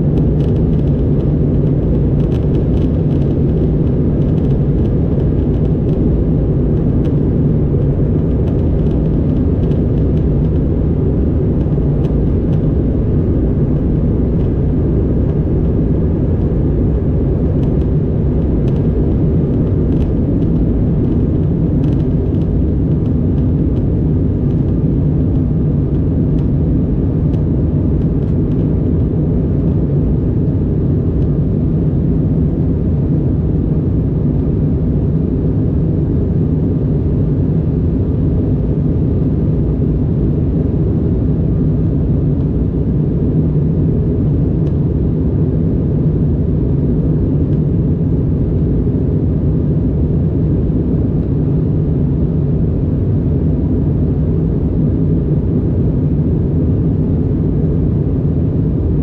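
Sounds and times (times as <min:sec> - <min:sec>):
jet engine and airflow hum in cabin: 0:00.0 - 0:59.0.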